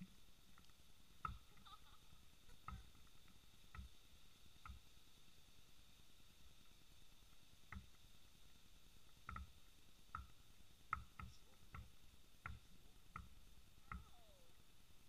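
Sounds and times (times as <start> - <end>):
basketball bouncing: 1.2 - 1.6.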